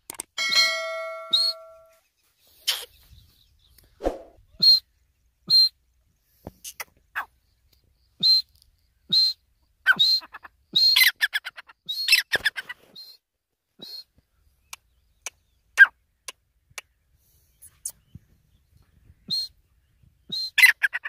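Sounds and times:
francolin calling: 0.4s - 2.0s, 4.5s - 5.9s, 6.6s - 13.2s, 18.8s - 21.0s.

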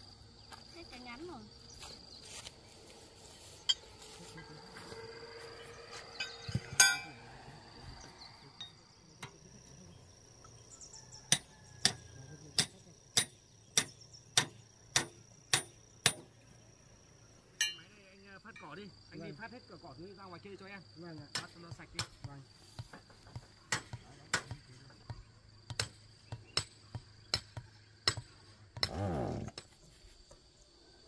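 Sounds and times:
high insect drone: 0.0s - 31.0s
hammer clinking: 6.2s - 7.1s, 17.6s - 17.9s.

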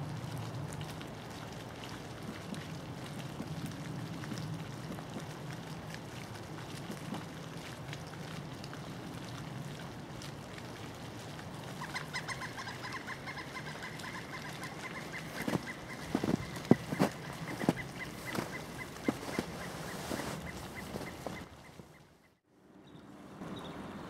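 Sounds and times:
woodpecker calling: 11.8s - 22.1s.

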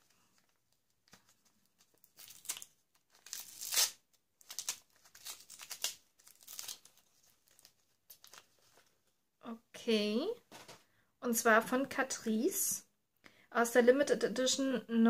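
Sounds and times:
wrapping paper crinkling and tearing: 0.0s - 9.0s.

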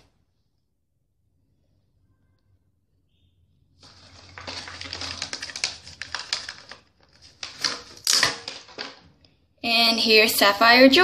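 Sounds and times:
packaging crinkling and clicking: 3.8s - 9.1s.

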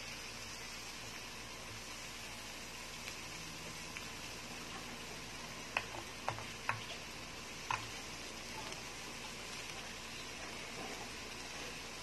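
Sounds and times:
food sizzling on grill pan: 0.0s - 12.0s
chopsticks tapping pan: 5.7s - 8.8s.

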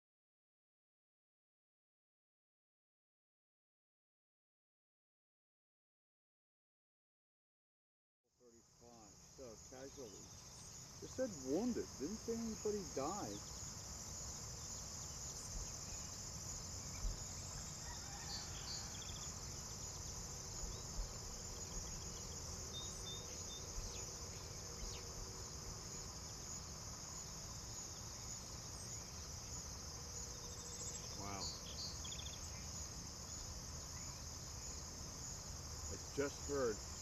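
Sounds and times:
crickets and insects chorus: 8.4s - 37.0s.

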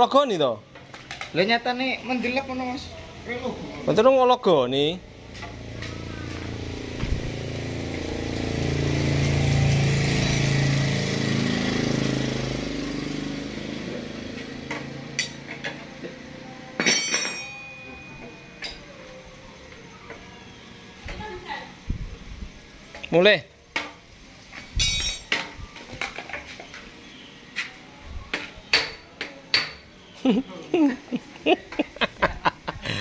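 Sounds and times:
vehicle engine passing by: 4.9s - 16.6s
metal tools clinking: 15.2s - 15.7s, 16.8s - 18.9s, 24.8s - 25.5s.

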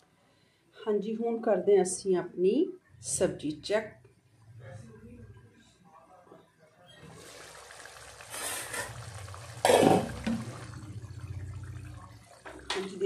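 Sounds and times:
thick gravy bubbling: 7.0s - 13.0s.

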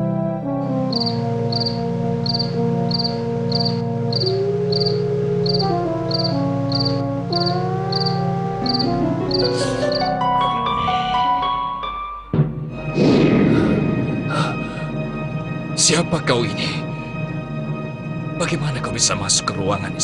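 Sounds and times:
soft sustained music chords: 0.0s - 12.0s, 12.8s - 20.0s
cricket chirping: 0.9s - 10.1s.

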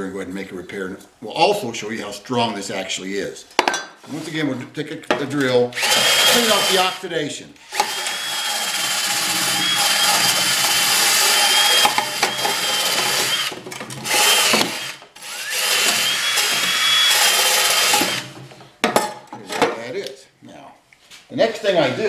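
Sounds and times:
drill motor whine: 5.8s - 7.0s, 7.6s - 18.3s.

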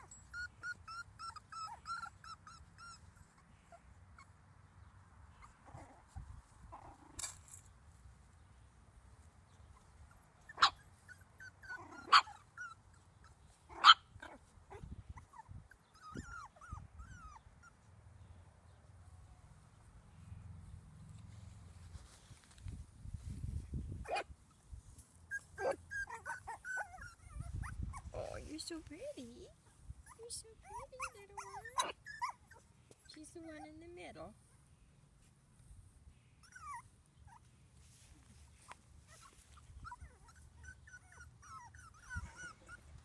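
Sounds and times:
puppies whining: 0.0s - 4.4s, 9.7s - 17.8s, 25.3s - 28.5s, 30.0s - 33.8s, 36.3s - 37.5s, 39.1s - 43.0s
puppy yipping: 0.0s - 4.4s, 9.7s - 17.8s, 24.0s - 24.3s, 25.3s - 28.4s, 30.0s - 32.7s, 36.4s - 37.5s, 38.6s - 43.0s.

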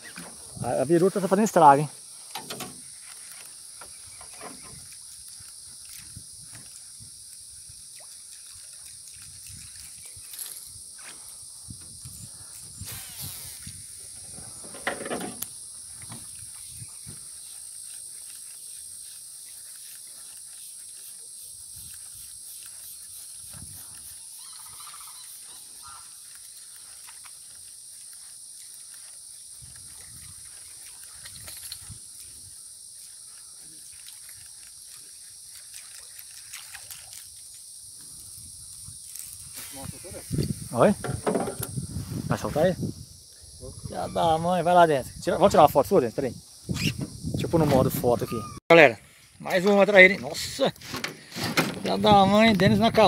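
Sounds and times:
steady high hiss: 10.4s - 26.1s, 37.6s - 47.6s.

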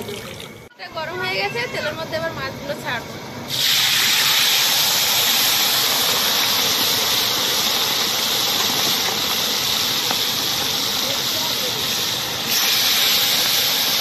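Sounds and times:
fish deep-frying in hot oil: 3.5s - 14.0s.

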